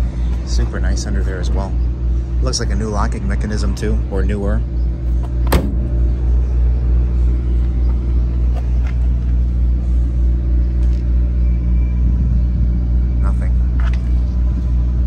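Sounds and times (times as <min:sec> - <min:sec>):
car engine idling: 0:00.0 - 0:15.0
sharp knock: 0:05.5 - 0:06.1.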